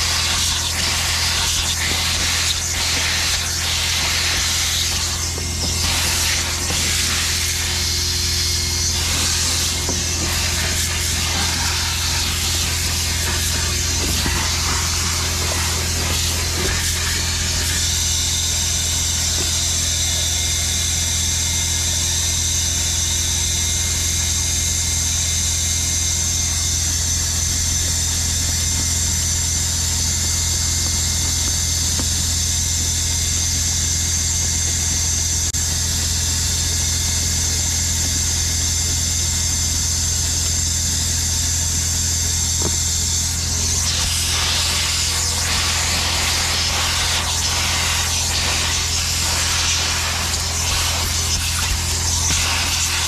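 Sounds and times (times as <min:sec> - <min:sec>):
wand spraying and sucking water: 0:00.0 - 0:18.1, 0:43.3 - 0:53.0
vacuum motor hum and whine: 0:00.0 - 0:53.0.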